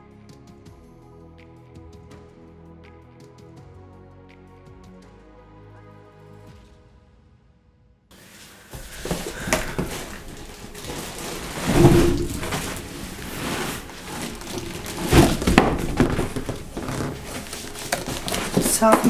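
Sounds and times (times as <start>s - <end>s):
packaging rustling: 8.2s - 19.0s
heavy thuds: 8.7s - 19.0s.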